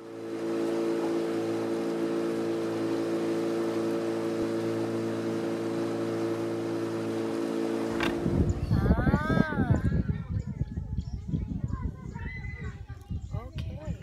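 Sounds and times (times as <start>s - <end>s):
rushing air and water: 0.0s - 9.7s
outboard motor drone: 0.0s - 11.1s.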